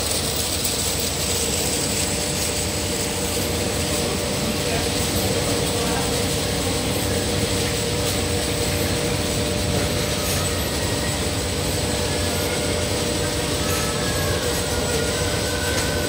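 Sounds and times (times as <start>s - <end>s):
machine mechanical drone: 0.0s - 16.0s.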